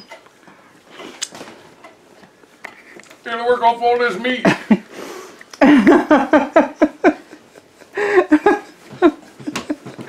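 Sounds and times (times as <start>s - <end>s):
person laughing: 4.4s - 4.9s, 5.5s - 10.0s.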